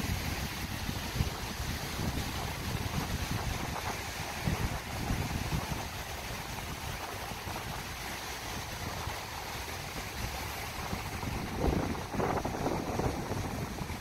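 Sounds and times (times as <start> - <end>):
rippling river water: 0.0 - 14.0
wind buffeting microphone: 0.0 - 14.0.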